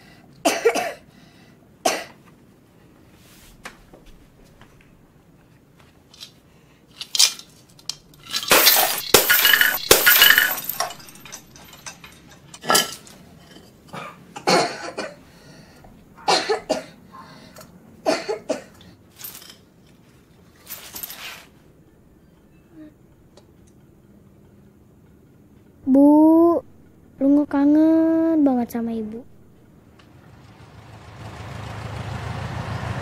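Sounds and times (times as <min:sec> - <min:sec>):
coins and shards clinking: 0:06.9 - 0:13.2, 0:19.1 - 0:20.0, 0:20.6 - 0:21.5
coins scattering and rattling: 0:07.0 - 0:12.5, 0:19.1 - 0:19.7, 0:20.6 - 0:21.4
piggy bank shattering on concrete: 0:08.3 - 0:12.0.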